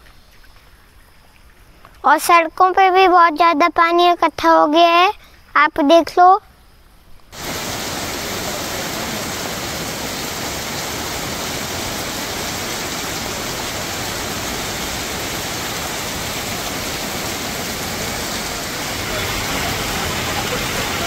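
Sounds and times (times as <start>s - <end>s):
heavy rain on a street: 7.4s - 21.0s.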